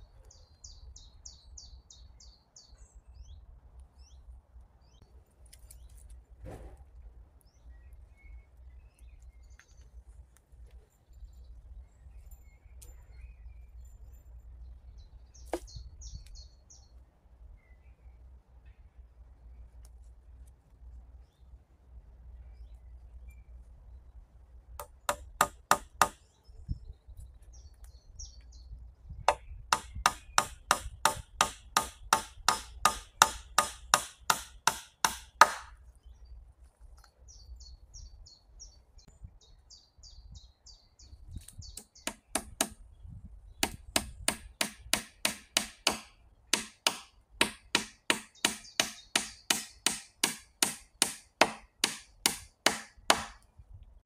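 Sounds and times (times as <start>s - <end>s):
tool striking wood: 24.8s - 26.2s, 29.3s - 35.8s, 41.8s - 42.8s, 43.6s - 53.4s.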